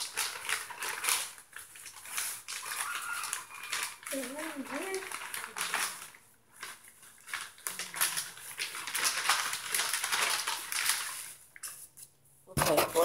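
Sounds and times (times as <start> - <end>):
wood shavings rustling: 0.0 - 11.8
plastic bag crinkling: 0.0 - 12.0.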